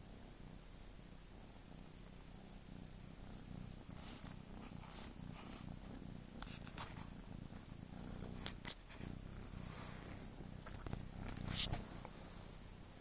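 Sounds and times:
cat purring: 0.0 - 13.0
soft rustles: 3.3 - 12.8.

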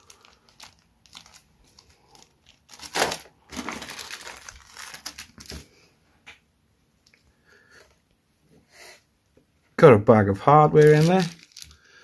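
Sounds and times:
plastic bags crinkling: 0.0 - 5.9, 10.6 - 12.0.

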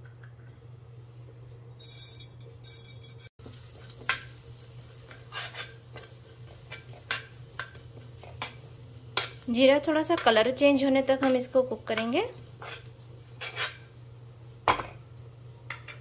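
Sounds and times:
seeds sizzling in oil: 3.4 - 15.9
steel spoon scraping pan: 5.0 - 7.2, 11.1 - 13.9.

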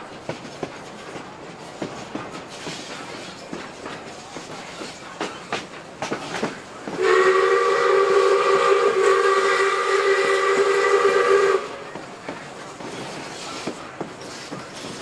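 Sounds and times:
rail clicks: 0.0 - 15.0
train running noise: 0.0 - 15.0
steam locomotive whistle: 6.9 - 12.0.

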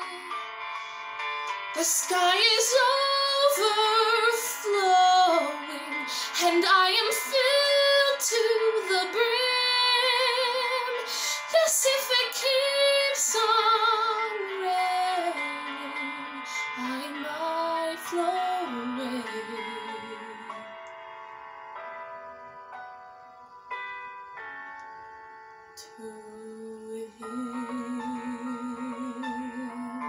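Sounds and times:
woman singing a ballad: 0.0 - 20.7, 25.8 - 30.0
sustained accompaniment chords: 13.8 - 30.0.

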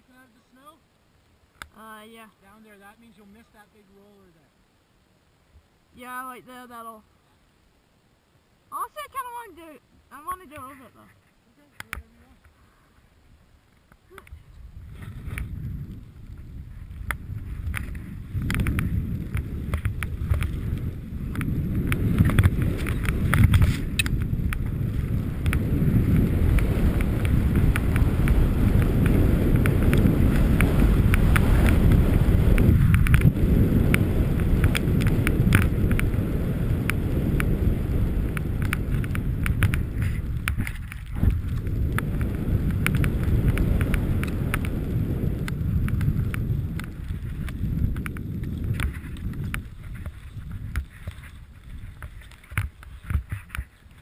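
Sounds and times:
wind rushing over microphone: 14.1 - 54.0
skis running through snow: 14.8 - 54.0.

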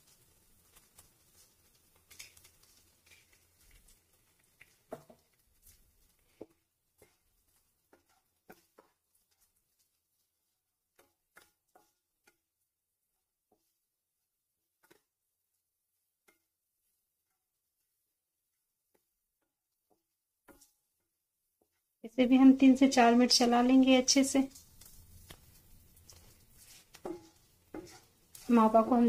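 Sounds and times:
spatula scraping frying pan: 0.0 - 12.4, 23.3 - 29.0.

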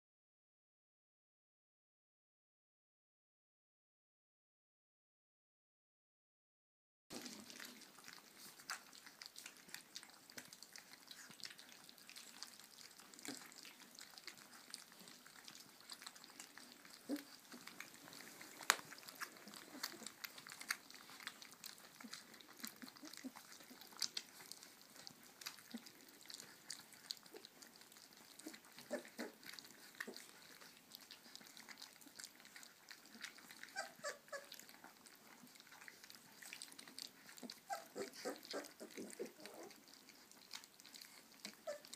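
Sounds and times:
puppies lapping wet food: 7.1 - 41.9
puppy squeaks: 33.6 - 34.6, 37.5 - 39.7, 41.4 - 41.9.

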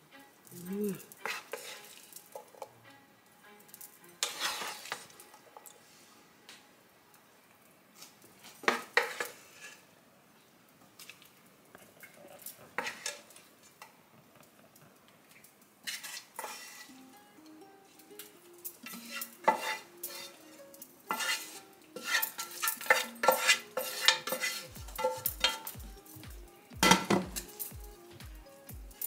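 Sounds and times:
wooden spoon scraping frying pan: 1.0 - 2.7, 4.2 - 6.0, 8.6 - 9.9, 12.7 - 13.4, 15.8 - 17.0, 18.8 - 25.8.

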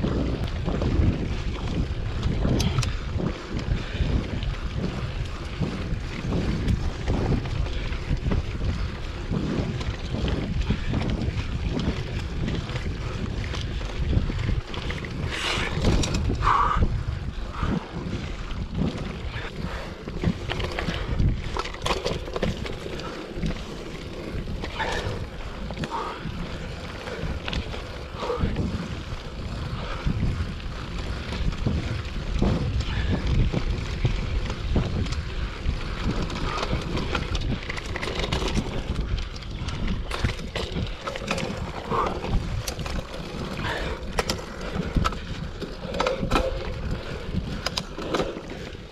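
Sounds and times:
bike rattling over bumps: 0.0 - 48.9
tyres rumbling on dirt: 0.0 - 48.9
wind buffeting microphone: 0.0 - 48.9.

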